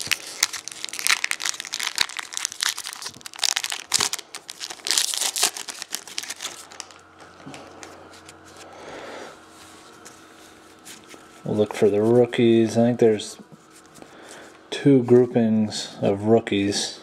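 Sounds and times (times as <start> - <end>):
foil wrapper tearing and crinkling: 0.0 - 7.1.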